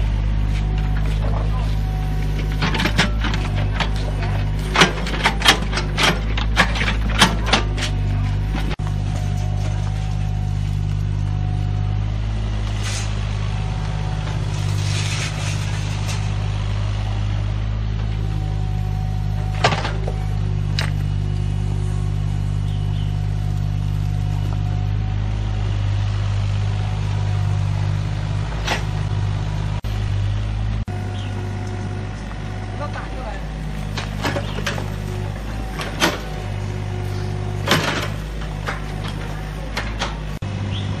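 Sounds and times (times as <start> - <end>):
excavator diesel engine running: 0.0 - 41.0
rubble scraping: 14.2 - 16.4.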